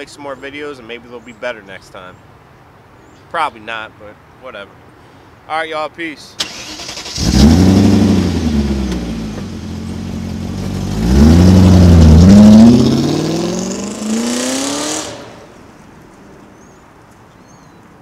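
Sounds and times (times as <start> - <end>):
car engine revving: 6.5 - 15.5.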